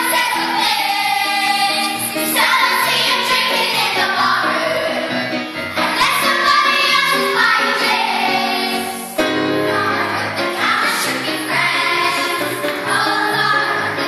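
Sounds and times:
children's choir singing: 0:00.0 - 0:14.0.

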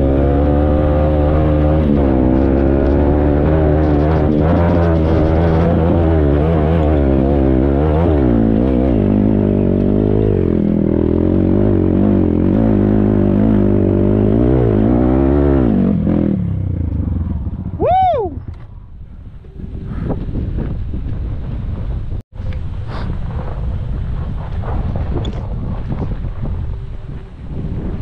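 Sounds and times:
motorcycle engine running: 0:00.0 - 0:22.1.

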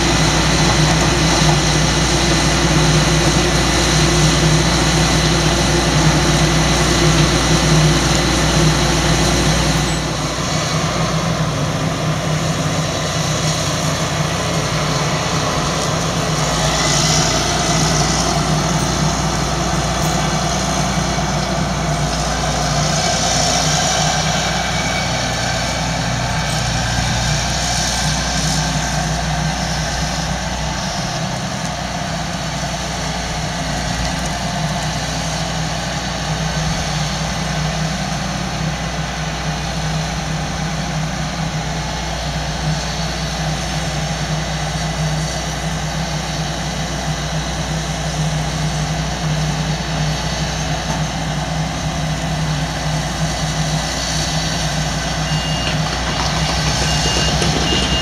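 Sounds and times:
combine harvester engine running: 0:00.0 - 0:58.0
reversing alarm beeping: 0:55.0 - 0:58.0.

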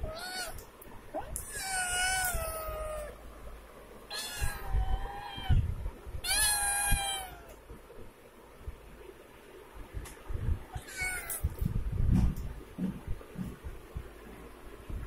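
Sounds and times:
kittens meowing: 0:00.0 - 0:00.6, 0:01.4 - 0:03.2, 0:04.1 - 0:05.6, 0:06.2 - 0:07.6, 0:10.8 - 0:11.6.

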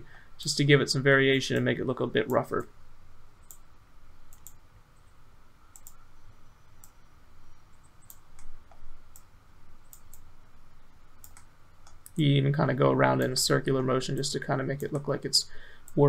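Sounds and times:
faint steady hiss: 0:00.0 - 0:16.0
computer mouse clicking: 0:04.3 - 0:05.1, 0:05.7 - 0:06.0, 0:07.8 - 0:10.3, 0:11.2 - 0:12.2.

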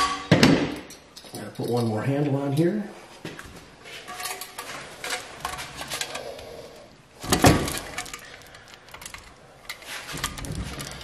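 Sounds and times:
loud metal clank: 0:00.0 - 0:00.9.

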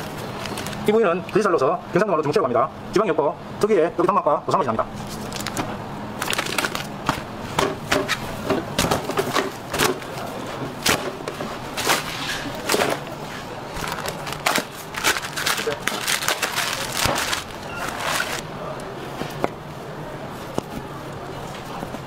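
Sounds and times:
plastic wrapping crinkling: 0:06.2 - 0:06.9, 0:11.8 - 0:18.4.

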